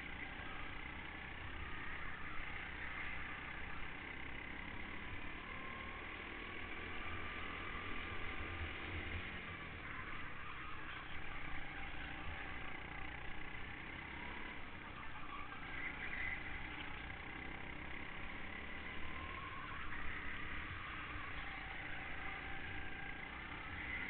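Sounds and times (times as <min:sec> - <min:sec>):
go-kart engine whining: 0:00.0 - 0:24.0
road noise: 0:00.0 - 0:24.0.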